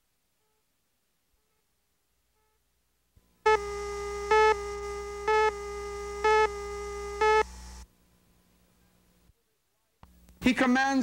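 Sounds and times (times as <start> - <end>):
electronic beeps: 3.5 - 7.5
steady electronic tone: 3.5 - 7.8
low hum: 3.5 - 8.0.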